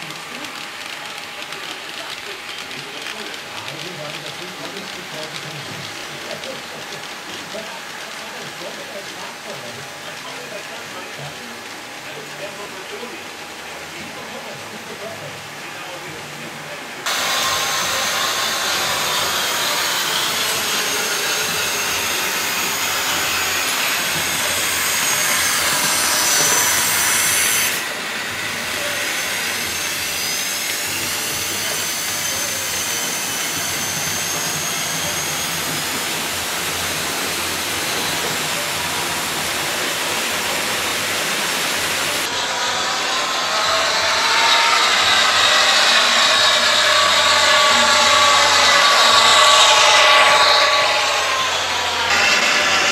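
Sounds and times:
model trains running on track: 0:00.0 - 0:52.9
whining electric motors: 0:16.5 - 0:52.9.

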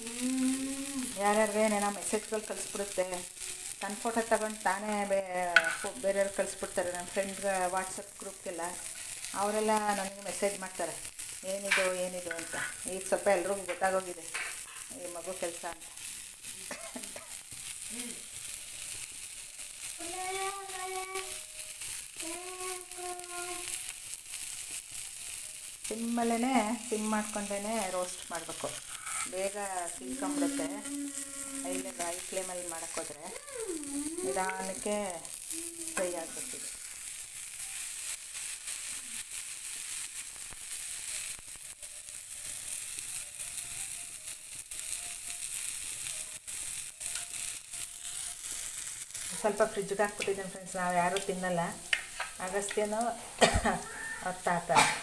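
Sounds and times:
person singing long notes: 0:00.0 - 0:01.2, 0:30.1 - 0:31.8
fish sizzling on a pan: 0:00.0 - 0:55.0
small crackles of frying: 0:00.0 - 0:55.0.

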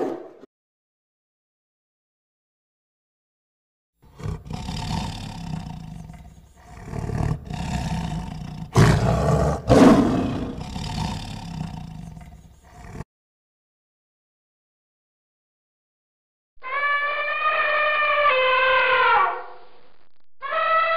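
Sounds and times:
tiger roaring: 0:04.0 - 0:13.0.

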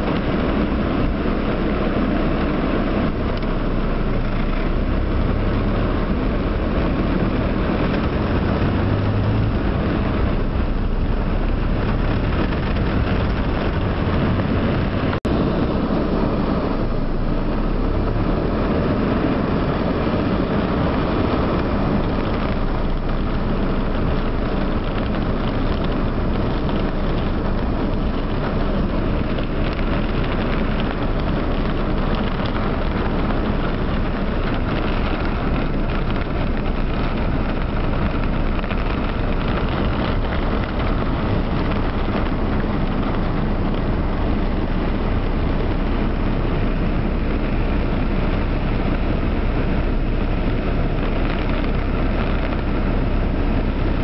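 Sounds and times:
car running on wet street: 0:00.0 - 0:54.0
heavy rain on a car: 0:00.0 - 0:54.0.

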